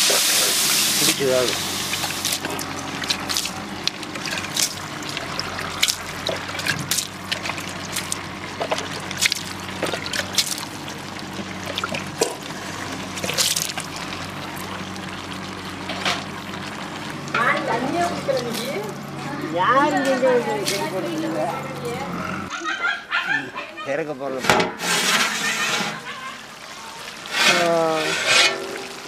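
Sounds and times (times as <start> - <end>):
steady watery background: 0.0 - 22.4, 24.8 - 29.0
metal spatula scraping pot: 24.3 - 26.2, 27.2 - 29.0.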